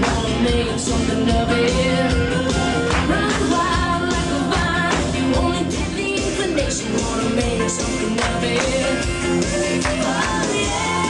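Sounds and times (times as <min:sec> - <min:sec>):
country music band: 0:00.0 - 0:11.0
person singing: 0:00.0 - 0:11.0.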